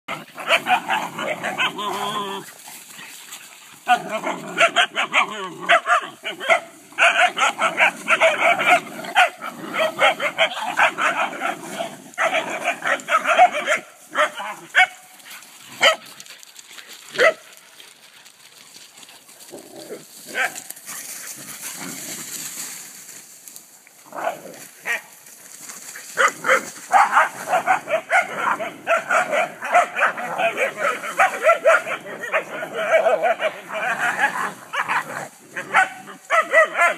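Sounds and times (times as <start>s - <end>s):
dogs barking: 0.1s - 2.3s, 3.8s - 16.1s, 17.1s - 17.5s, 26.1s - 36.9s
dogs growling: 0.1s - 13.7s, 19.3s - 22.4s, 25.9s - 36.9s.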